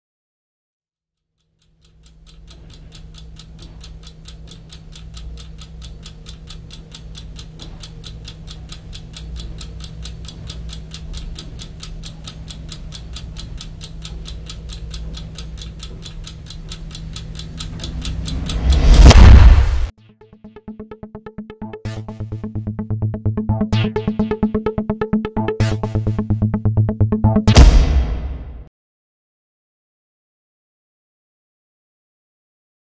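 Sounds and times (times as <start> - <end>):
clock ticking fast: 1.4 - 28.5.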